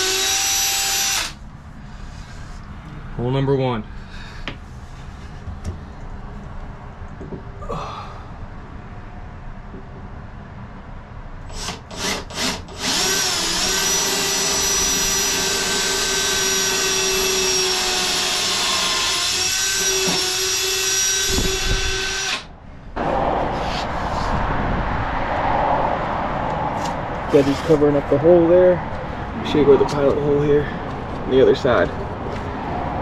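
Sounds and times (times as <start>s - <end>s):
cordless drill whining: 0.0s - 1.4s, 11.5s - 22.5s.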